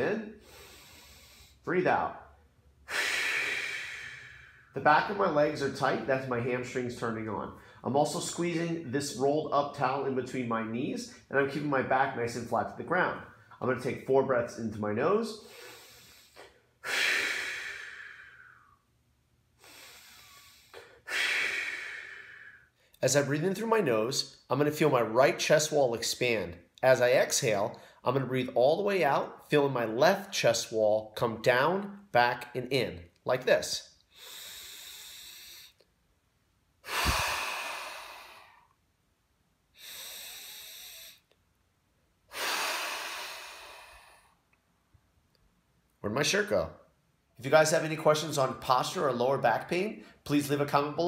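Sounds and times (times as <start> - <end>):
man breathing deeply: 0.3 - 6.1, 15.3 - 23.0, 34.0 - 35.9, 36.8 - 38.9, 39.7 - 41.4, 42.3 - 44.6.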